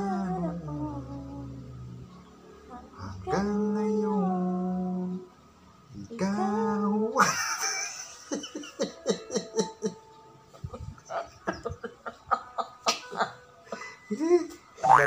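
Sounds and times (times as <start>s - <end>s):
man singing: 0.0s - 1.8s, 3.1s - 5.3s, 6.0s - 7.3s
man laughing: 7.2s - 10.0s, 10.7s - 15.0s.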